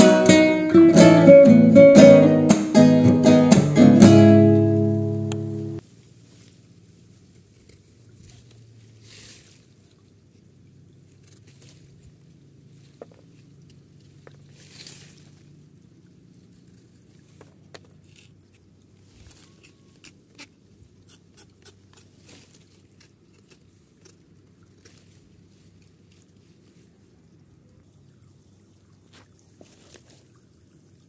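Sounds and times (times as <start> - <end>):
knife scraping bark: 18.0 - 24.2.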